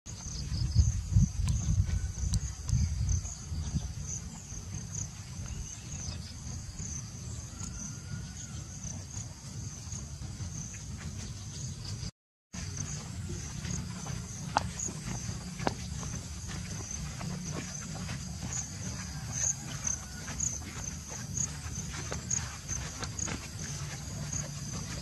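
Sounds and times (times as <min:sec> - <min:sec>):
insects chirping trill: 0:00.1 - 0:25.0.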